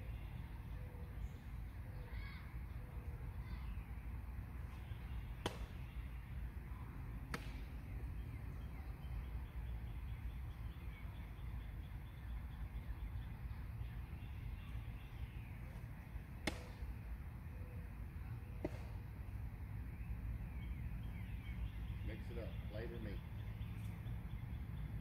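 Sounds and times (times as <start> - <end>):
faint bird calls: 0.0 - 4.0
sharp pops: 5.4 - 5.8, 7.3 - 7.7, 16.4 - 16.9, 18.6 - 19.0.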